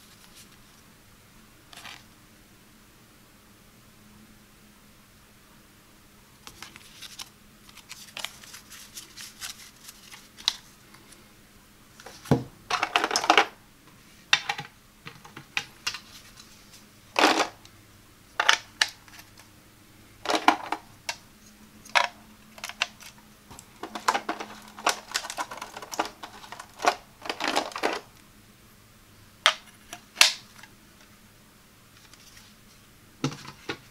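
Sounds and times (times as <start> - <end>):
card handling: 6.4 - 11.2, 21.8 - 28.1
rattling clatter of pieces: 12.2 - 13.6, 17.2 - 17.6, 20.3 - 20.9, 21.9 - 28.1.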